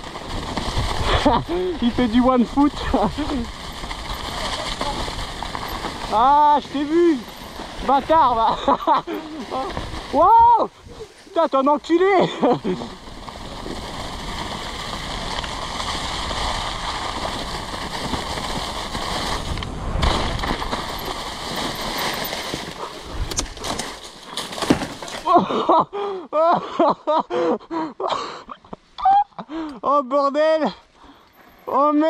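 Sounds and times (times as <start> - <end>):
bike tyres rushing through leaves: 0.0 - 26.0
person's voice: 1.2 - 3.5, 6.1 - 7.2, 7.8 - 12.9.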